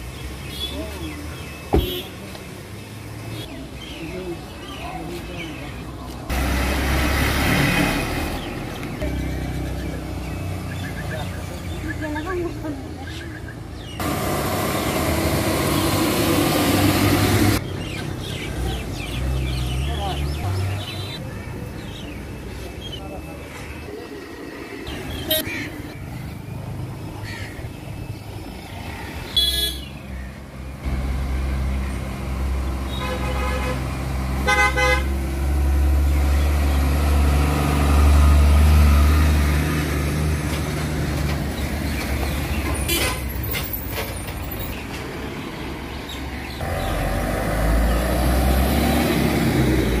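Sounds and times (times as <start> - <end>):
vehicle horns: 1.7 - 2.2, 29.3 - 30.0, 32.9 - 35.3, 42.8 - 43.4
bus approaching: 2.8 - 29.7, 30.5 - 50.0
truck diesel engine rumbling: 13.9 - 17.6.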